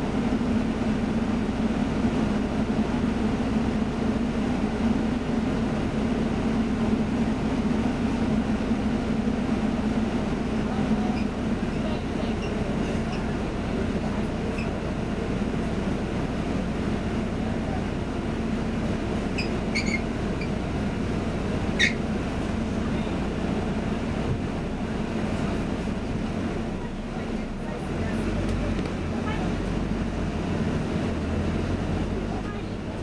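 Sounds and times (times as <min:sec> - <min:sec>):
bus engine rumbling: 0:00.0 - 0:33.0
brief high squeaks: 0:19.3 - 0:20.6, 0:21.8 - 0:22.0.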